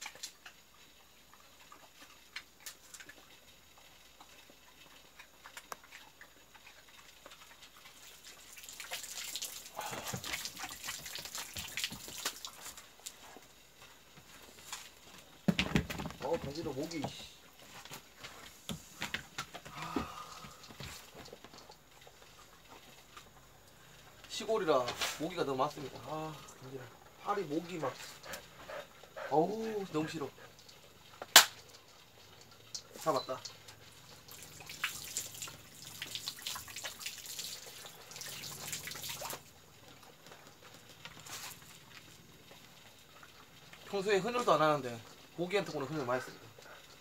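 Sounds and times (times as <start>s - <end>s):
hose water splashing on concrete: 0.0s - 28.6s, 29.3s - 47.0s
hand slapping bare legs: 31.3s - 31.6s.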